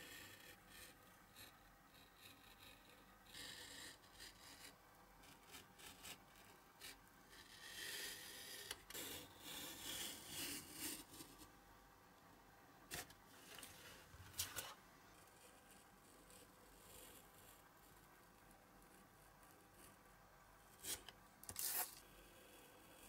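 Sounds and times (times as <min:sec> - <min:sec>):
knife blade scratching paper: 0:00.0 - 0:11.4, 0:20.8 - 0:22.1.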